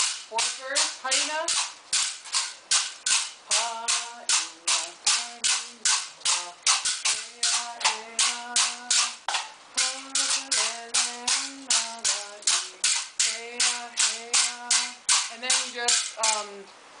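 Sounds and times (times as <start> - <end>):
bamboo rattle sticks clacking: 0.0 - 16.5
person humming: 3.5 - 9.2, 9.8 - 16.5.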